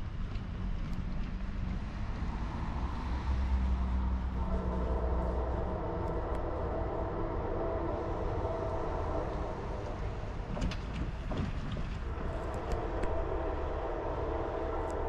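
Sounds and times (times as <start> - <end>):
diesel locomotive rumble: 0.0 - 15.0.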